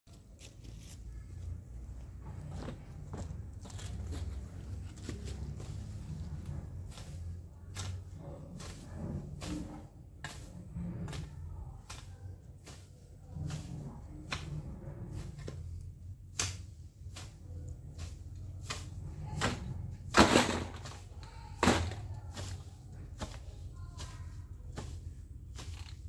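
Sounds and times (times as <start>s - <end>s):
low rumble: 1.2s - 20.1s
garden tool chopping and scraping ground: 2.3s - 26.0s.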